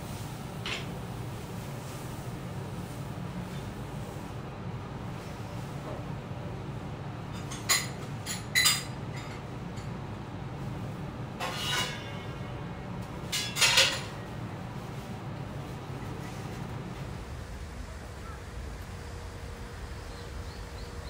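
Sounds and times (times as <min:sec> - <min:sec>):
dishes and utensils clinking: 0:07.3 - 0:10.0, 0:11.4 - 0:12.6, 0:13.2 - 0:14.3
low hum: 0:15.4 - 0:21.0.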